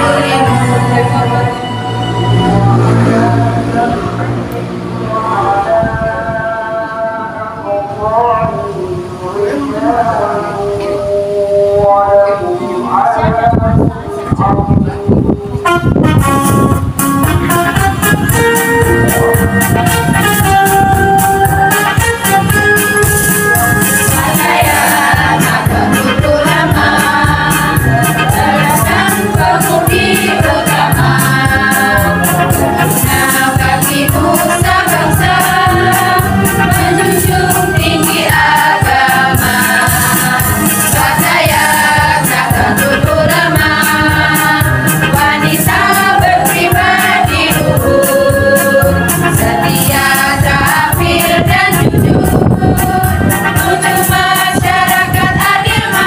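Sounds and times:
women's choir singing a march: 0:00.0 - 0:04.4, 0:23.8 - 0:56.0
instrumental accompaniment with beat: 0:15.6 - 0:56.0.

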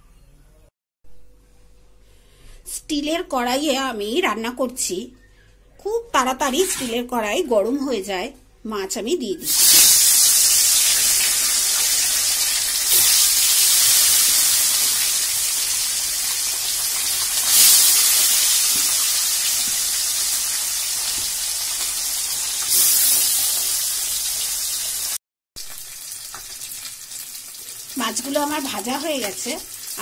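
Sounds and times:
fish sizzling in hot oil: 0:09.4 - 0:30.0.

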